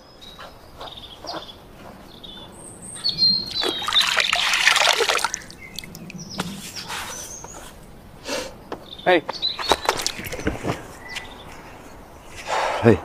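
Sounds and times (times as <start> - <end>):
small birds chirping: 0.0 - 12.6
water splashing and trickling: 3.2 - 7.0, 9.6 - 10.7.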